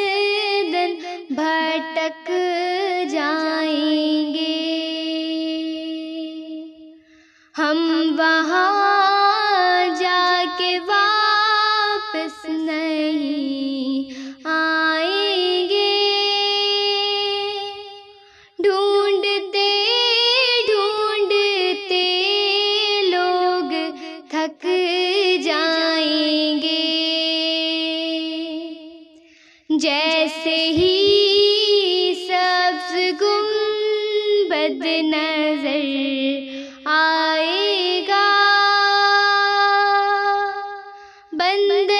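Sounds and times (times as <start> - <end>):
girl singing solo: 29.7 - 41.9.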